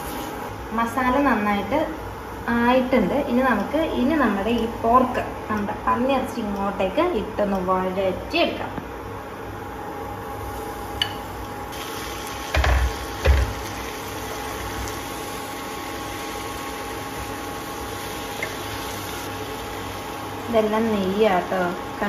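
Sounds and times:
induction cooktop hum: 0.0 - 22.0.

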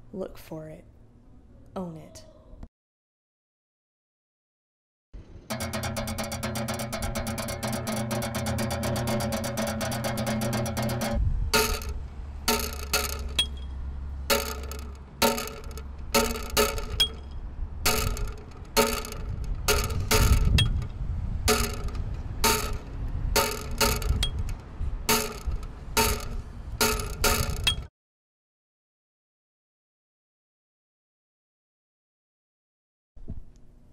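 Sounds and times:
low rumble: 5.2 - 12.6.

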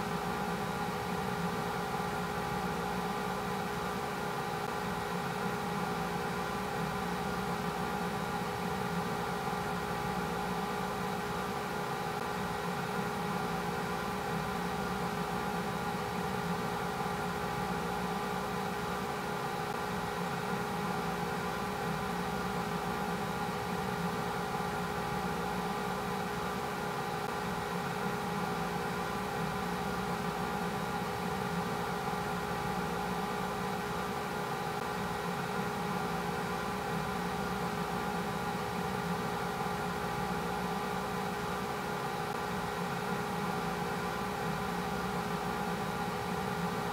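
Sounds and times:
steady multi-tone hum: 0.0 - 46.9.

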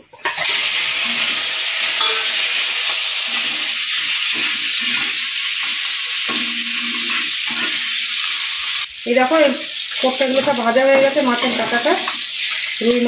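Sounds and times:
spatula stirring in pan: 0.0 - 8.2
fish frying in hot oil: 0.0 - 13.0.

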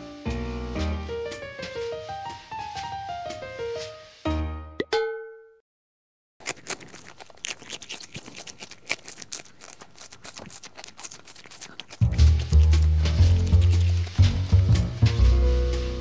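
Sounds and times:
background music: 0.0 - 5.2, 12.0 - 16.0
piano note: 0.0 - 5.2, 12.2 - 16.0
hamster nibbling and rustling: 6.4 - 16.0.

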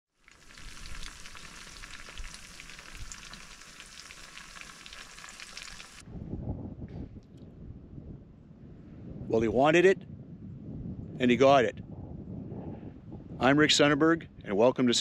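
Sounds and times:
fish frying in hot oil: 0.1 - 6.0.

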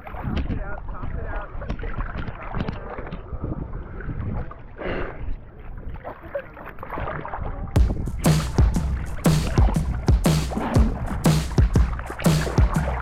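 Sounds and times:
wind rumbling on microphone: 0.0 - 6.1, 7.0 - 10.0
water sloshing and splashing: 0.0 - 13.0.

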